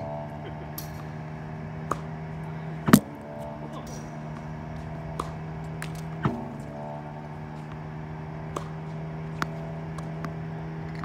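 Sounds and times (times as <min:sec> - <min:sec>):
balls struck and bouncing: 0:00.0 - 0:11.0
tennis ball machine humming: 0:00.0 - 0:11.0
ball machine firing knock: 0:02.8 - 0:04.5.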